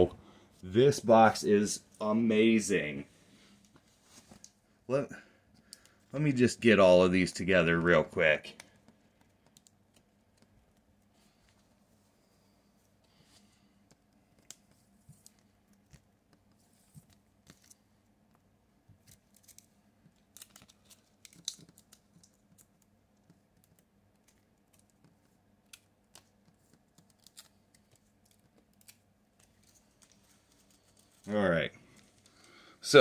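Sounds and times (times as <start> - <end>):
trading cards clicking and rustling: 13.8 - 17.9, 19.0 - 32.6.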